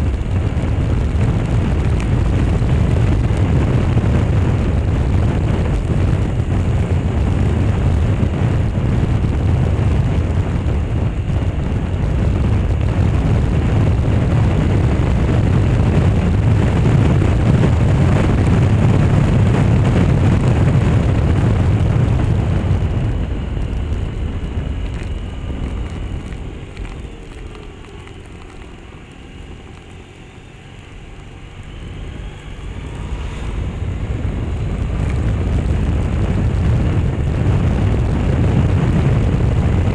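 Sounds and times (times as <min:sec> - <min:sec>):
scooter engine and road noise: 0:00.0 - 0:39.9
wind buffeting microphone: 0:00.0 - 0:39.9.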